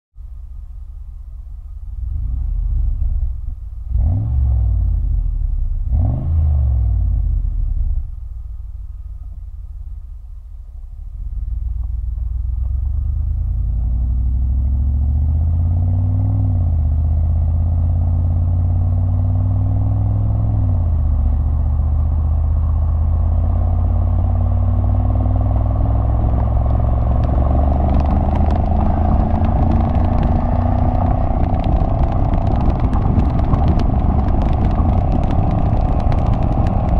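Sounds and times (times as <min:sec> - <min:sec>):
car engine revving and accelerating: 0:02.0 - 0:08.1, 0:11.3 - 0:36.9
wind noise: 0:11.4 - 0:36.9.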